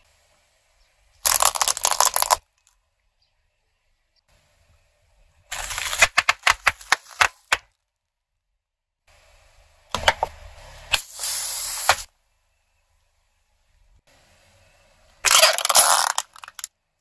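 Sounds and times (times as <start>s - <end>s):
plastic packets popping: 1.2s - 2.4s, 5.5s - 7.7s, 15.3s - 16.7s.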